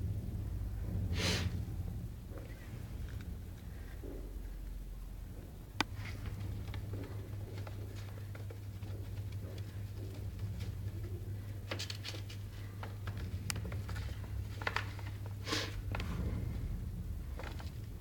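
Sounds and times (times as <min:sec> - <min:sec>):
steady low hum: 0:00.0 - 0:18.0
paper rustling: 0:11.7 - 0:16.0.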